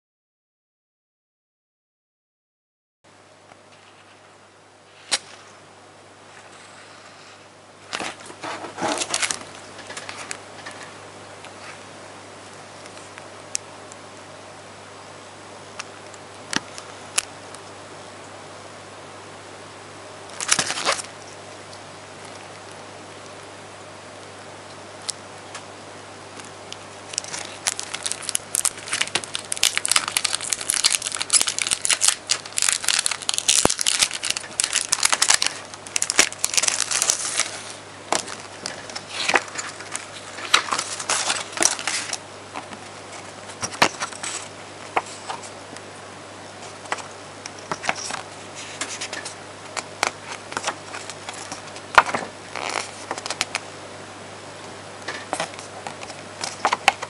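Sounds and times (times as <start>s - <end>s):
plastic packaging crinkling: 7.9s - 10.8s, 20.3s - 21.1s, 26.4s - 45.5s, 46.8s - 53.6s.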